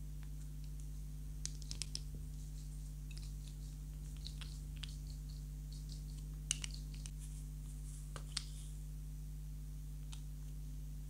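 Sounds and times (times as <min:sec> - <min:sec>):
cat purring hum: 0:01.7 - 0:08.8.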